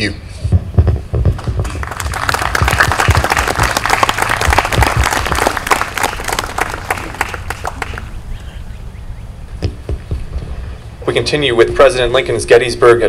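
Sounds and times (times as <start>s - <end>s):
audience applauding: 1.4s - 8.2s.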